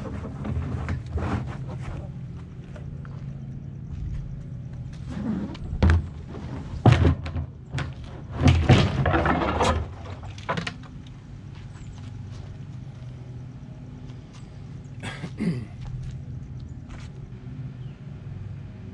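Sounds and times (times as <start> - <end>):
hollow tube knocking and thudding: 5.5 - 9.7.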